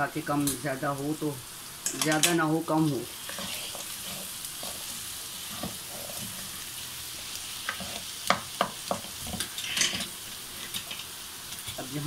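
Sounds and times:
oil sizzling: 0:00.0 - 0:12.0
wooden spoon scraping pan: 0:03.2 - 0:06.6, 0:07.2 - 0:11.1
spoon knocking against pan: 0:07.7 - 0:09.1.

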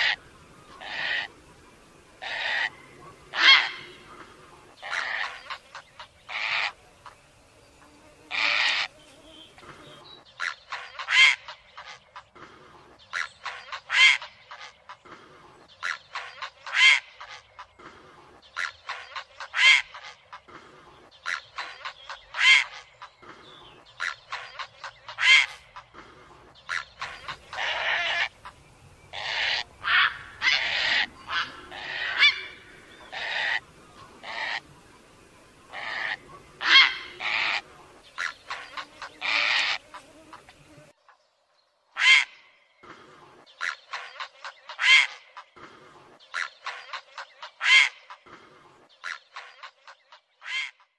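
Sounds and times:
heron squawking: 0:00.0 - 0:01.5, 0:02.1 - 0:07.2, 0:15.8 - 0:17.4, 0:21.2 - 0:23.0, 0:24.0 - 0:40.6, 0:46.3 - 0:48.2.

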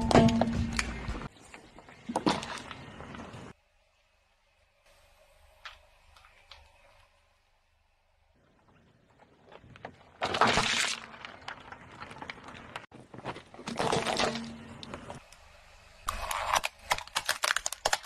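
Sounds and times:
car tyre crushing plastic: 0:09.3 - 0:15.2, 0:16.1 - 0:18.0
sharp plastic cracks: 0:16.1 - 0:18.0.

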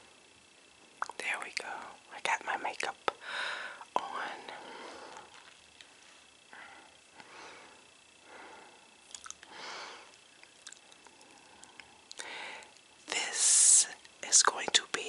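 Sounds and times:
wet mouth clicks: 0:01.0 - 0:01.2, 0:09.1 - 0:09.5, 0:10.4 - 0:12.2.

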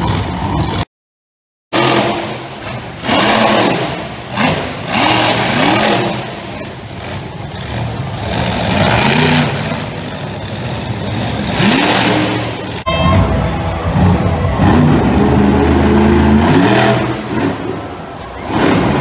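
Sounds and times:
truck engine revving: 0:00.0 - 0:00.9, 0:01.7 - 0:19.0.

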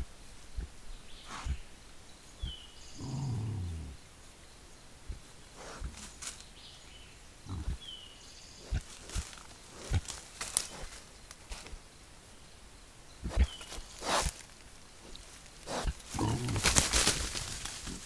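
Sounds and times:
hog grunting: 0:03.0 - 0:04.0, 0:07.4 - 0:07.9, 0:15.6 - 0:16.9
hogs rustling in undergrowth: 0:05.5 - 0:06.9, 0:08.6 - 0:11.9, 0:13.3 - 0:18.0.

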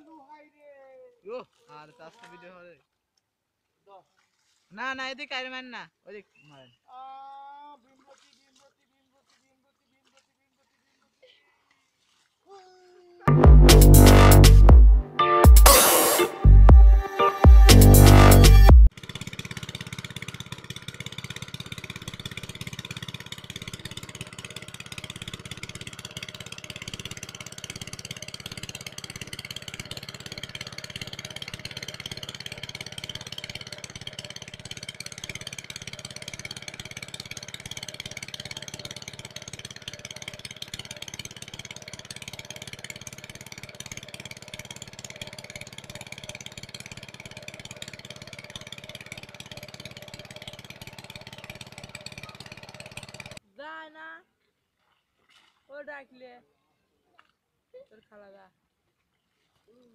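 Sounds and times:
small diesel engine chugging: 0:13.3 - 0:53.4.

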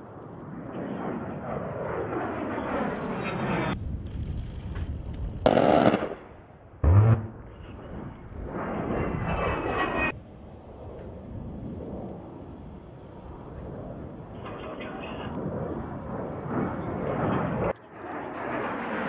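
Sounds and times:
jet engines passing: 0:00.0 - 0:04.0, 0:05.3 - 0:19.0
loud cannon bursts: 0:06.8 - 0:07.8.

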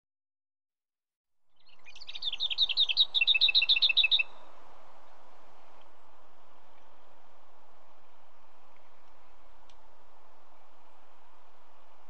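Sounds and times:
bird song warble and rattle: 0:01.6 - 0:04.5
background hiss: 0:01.6 - 0:12.0.

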